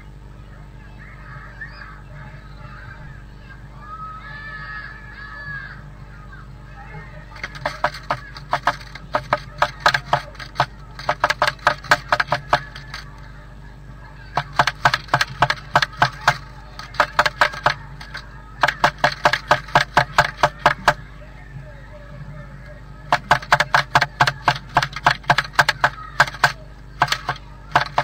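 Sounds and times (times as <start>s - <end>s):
bird pecking on wood: 7.4s - 13.1s, 14.4s - 21.0s, 23.1s - 28.0s.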